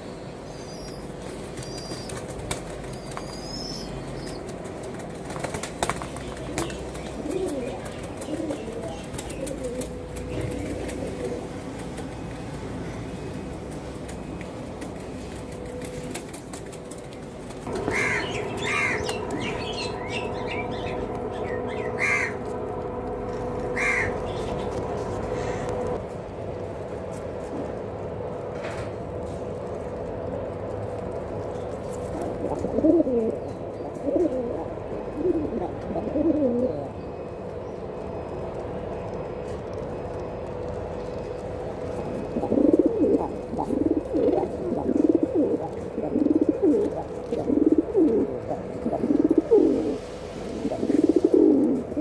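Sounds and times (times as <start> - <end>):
steady hum: 0.0 - 52.0
pigeons cooing: 0.6 - 22.6, 23.3 - 26.0, 32.2 - 37.0, 42.0 - 52.0
wings flapping: 1.2 - 19.5.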